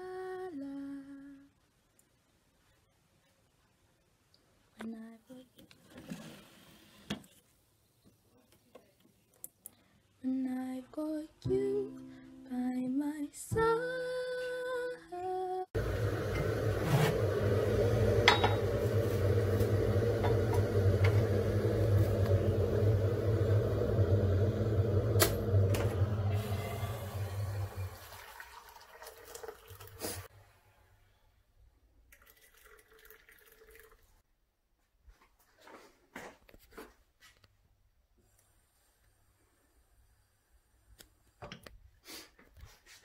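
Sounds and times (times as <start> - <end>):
water pouring into mug: 26.3 - 30.3, 32.1 - 34.2.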